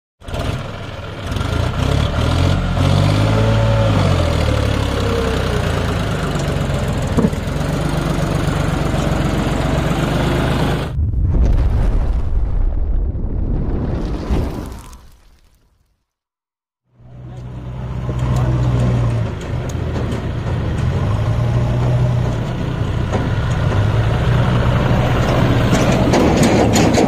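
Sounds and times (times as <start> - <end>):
tractor diesel engine under load: 0.2 - 11.0, 17.0 - 27.0.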